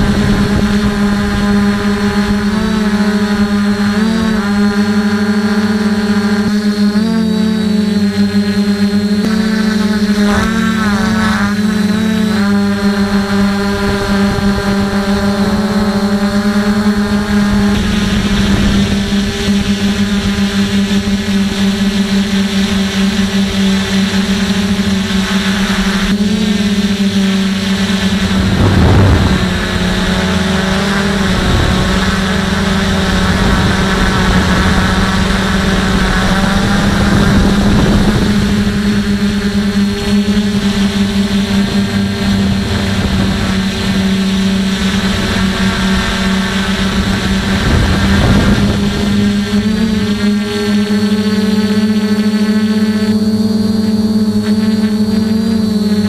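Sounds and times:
wind gusts on microphone: 0.0 - 4.7, 12.4 - 27.0, 27.6 - 51.7
drone motors humming: 0.0 - 56.0.

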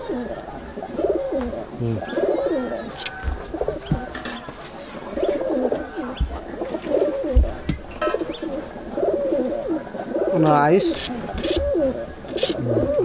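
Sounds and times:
pigeons cooing: 0.0 - 13.0.

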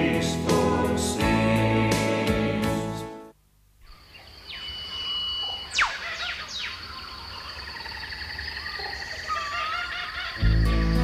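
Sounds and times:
bird warbling call: 4.0 - 11.0
bird whistles sweeping down: 4.5 - 6.8.

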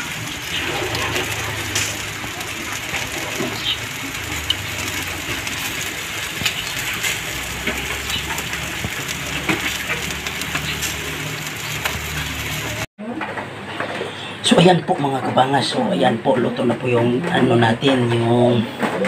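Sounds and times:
pork sizzling on grill: 0.0 - 12.9.

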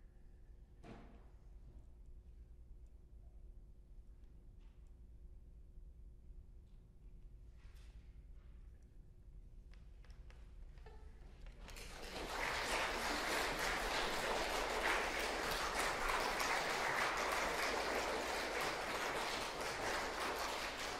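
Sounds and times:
audience applause: 11.7 - 20.9.

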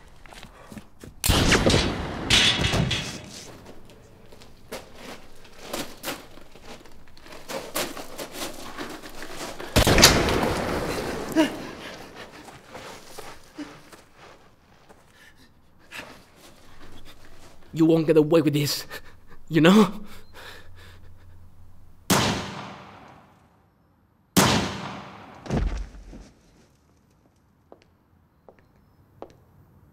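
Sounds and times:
gunshots with echo: 24.4 - 25.4.

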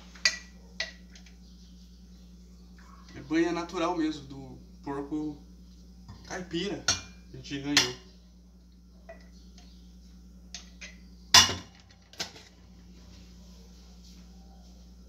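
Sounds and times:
kitchenware clinking: 0.2 - 1.3, 6.1 - 8.1, 10.5 - 12.6.

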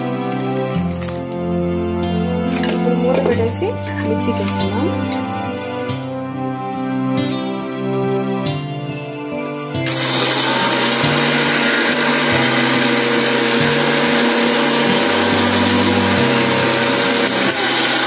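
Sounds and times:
mixer grinder motor running: 9.8 - 18.0
jar grinding biscuits: 9.9 - 18.0.

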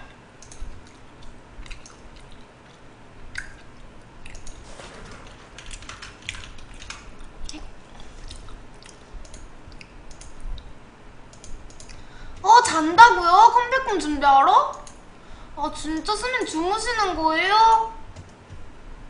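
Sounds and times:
small mouth clicks: 1.2 - 4.5
person chewing: 1.2 - 4.6, 6.3 - 9.0.

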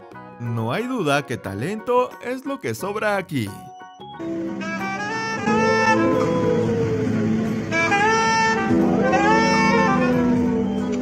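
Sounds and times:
saxophone slow melody: 4.2 - 11.0
dog howling: 5.6 - 7.4.

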